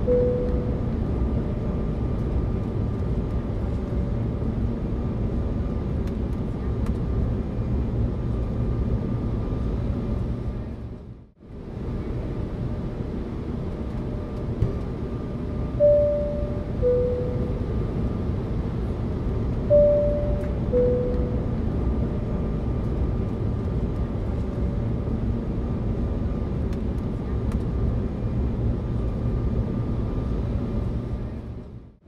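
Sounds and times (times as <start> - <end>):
two-tone ding-dong chime: 0.0 - 0.8, 15.8 - 17.6, 19.7 - 21.5
high tone: 0.0 - 0.9, 15.8 - 17.7, 19.7 - 21.7
airliner cabin rumble: 0.0 - 31.9.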